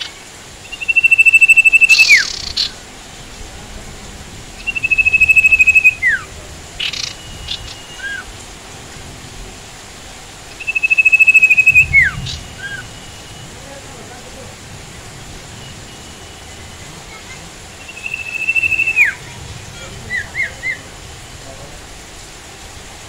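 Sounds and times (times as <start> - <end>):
bird trill: 0.0 - 2.8, 4.5 - 8.3, 10.5 - 13.5, 15.6 - 19.3
steady hiss: 0.0 - 23.0.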